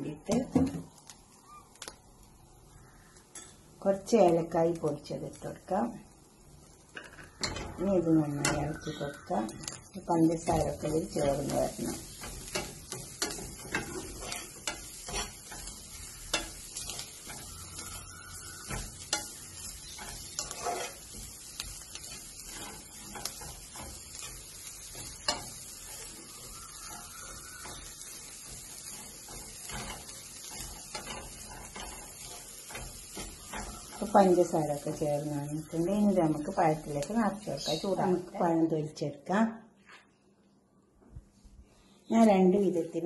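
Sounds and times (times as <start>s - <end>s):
frying sizzle: 0.0s - 38.8s, 42.1s - 43.0s
spatula scraping a pan: 7.0s - 35.9s.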